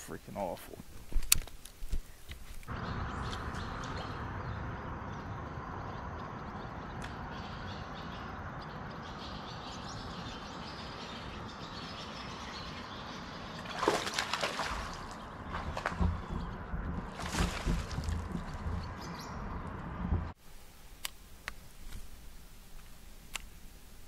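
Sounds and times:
fish splashing at the surface: 13.6s - 15.9s, 17.2s - 18.3s.

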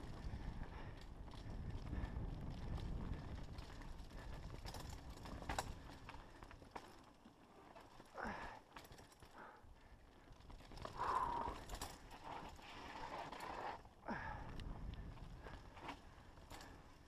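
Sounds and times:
wind rumble on microphone: 0.0s - 6.4s, 14.0s - 16.6s
bike rattling clicks and knocks: 0.0s - 17.0s.

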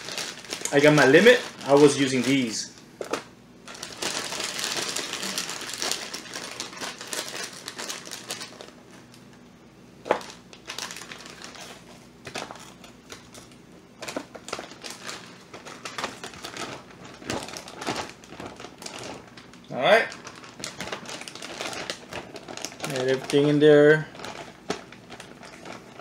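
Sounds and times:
plastic bags crinkling: 0.0s - 9.3s, 10.0s - 26.0s.

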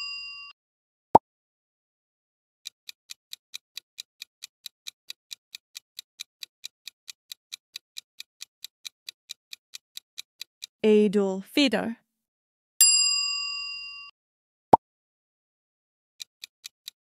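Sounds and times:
quick clock-like ticks: 2.6s - 10.8s, 16.2s - 17.0s.

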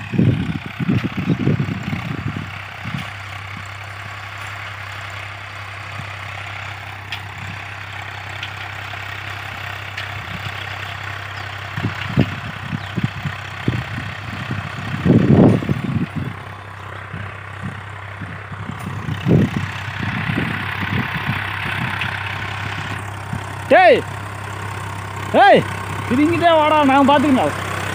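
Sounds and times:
tractor engine running: 0.0s - 27.9s
irregular low thumps: 11.8s - 23.5s.

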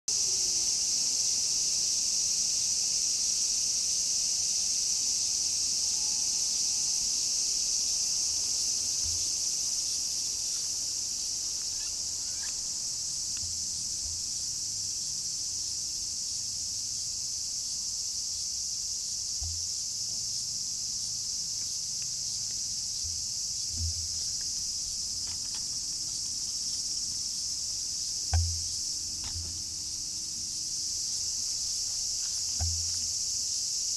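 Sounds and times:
insects chirring in grass: 0.1s - 33.9s
brief knock: 28.3s - 29.6s.

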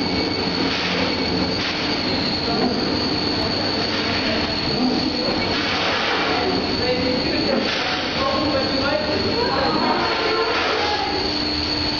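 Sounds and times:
dough sheeter motor whining: 0.0s - 11.9s.

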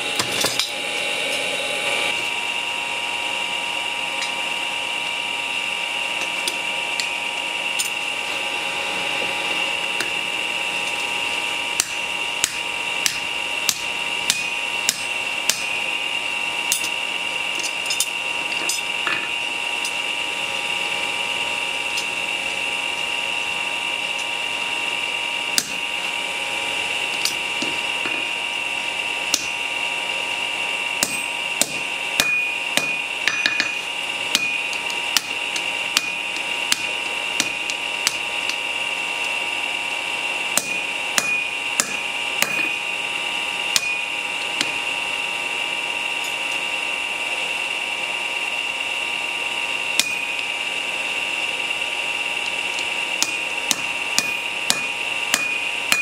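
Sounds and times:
hammer striking steel on anvil: 0.0s - 1.5s, 11.7s - 15.9s, 16.6s - 17.0s, 17.6s - 20.1s, 25.5s - 26.2s, 27.1s - 28.3s, 29.3s - 29.6s, 31.0s - 38.7s, 40.5s - 42.9s, 43.7s - 44.8s, 50.0s - 50.5s, 52.7s - 56.0s
high-pitched machine whine: 0.0s - 56.0s.

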